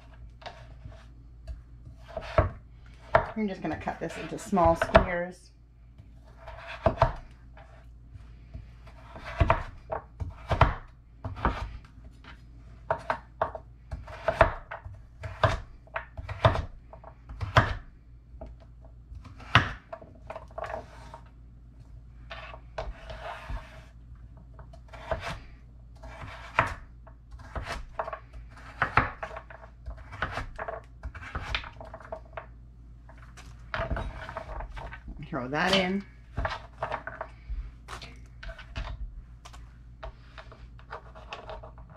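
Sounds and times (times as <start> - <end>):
knife chopping on wooden board: 1.8 - 5.2, 6.4 - 7.3, 8.8 - 11.7, 12.9 - 17.9, 19.2 - 21.1, 26.0 - 32.1.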